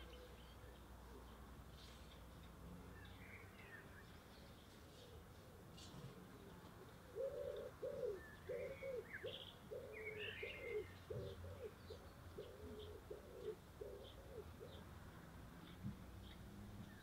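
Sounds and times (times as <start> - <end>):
small birds chirping: 0.0 - 17.0
pigeon cooing: 6.8 - 14.9.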